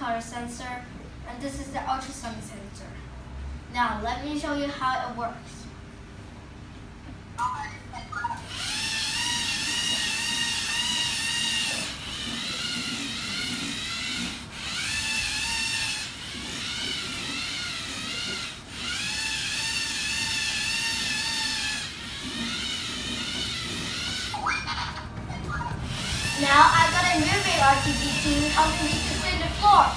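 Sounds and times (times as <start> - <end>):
small electric motors whining: 8.2 - 29.9.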